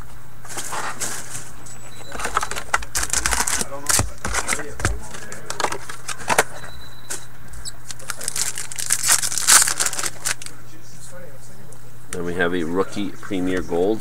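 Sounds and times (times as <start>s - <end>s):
steady low hum: 0.0s - 14.0s
foil wrappers crinkling: 0.5s - 6.6s, 7.6s - 10.6s.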